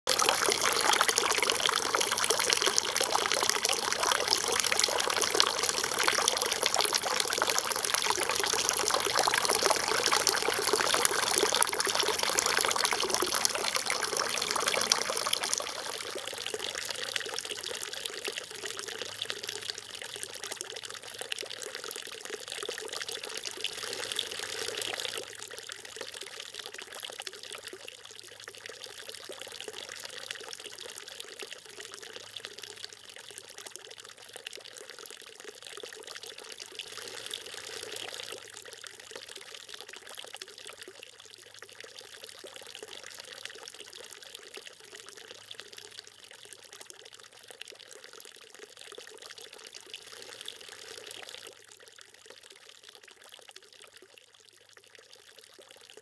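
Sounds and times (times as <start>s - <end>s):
water jet splashing into trough: 0.1s - 16.0s.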